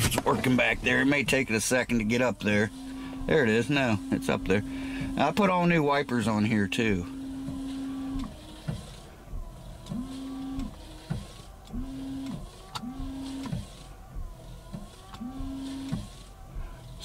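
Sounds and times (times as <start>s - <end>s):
wiper motor whirring: 0.0s - 17.0s
wiper clicks: 7.1s - 17.0s.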